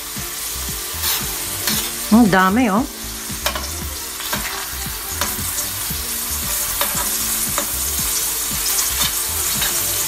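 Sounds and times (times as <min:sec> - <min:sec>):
meat sizzling in fat: 0:00.0 - 0:10.0
spatula scraping a pan: 0:03.0 - 0:10.0.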